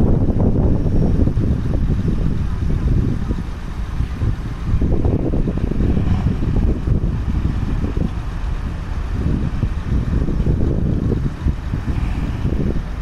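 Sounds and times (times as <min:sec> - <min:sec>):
crane diesel engine rumbling: 0:00.0 - 0:13.0.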